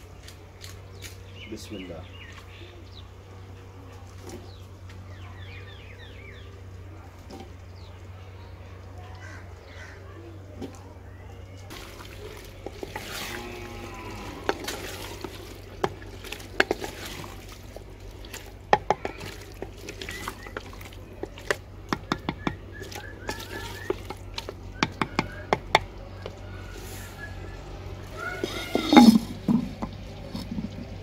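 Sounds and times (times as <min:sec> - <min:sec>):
food sizzling: 0:11.7 - 0:25.7
spatula knocking clay pot: 0:14.4 - 0:17.0, 0:18.7 - 0:26.4.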